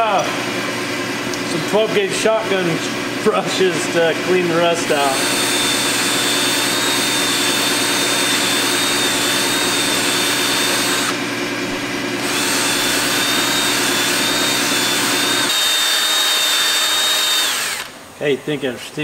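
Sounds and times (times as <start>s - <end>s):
cordless drill whining: 4.9s - 11.2s, 12.2s - 18.0s.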